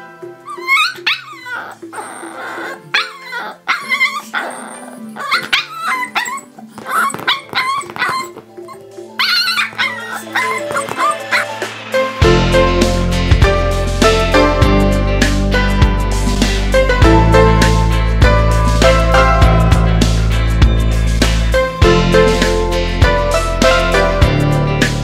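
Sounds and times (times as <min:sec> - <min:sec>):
background music: 0:00.0 - 0:25.0
puppy yipping and whining: 0:00.4 - 0:11.7.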